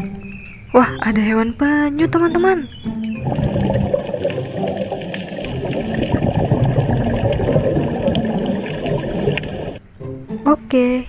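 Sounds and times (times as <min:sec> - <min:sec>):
faint crackle: 0:03.2 - 0:09.8
muffled underwater rush: 0:03.2 - 0:09.8.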